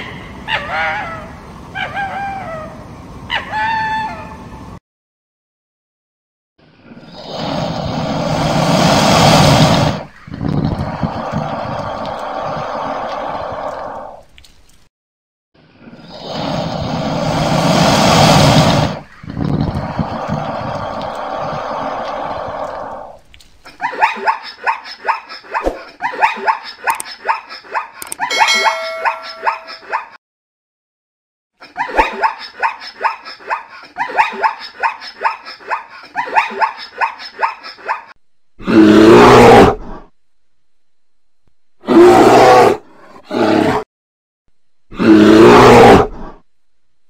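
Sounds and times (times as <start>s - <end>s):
crocodile growling: 18.2s - 23.2s
bright ringing chime: 28.3s - 29.8s.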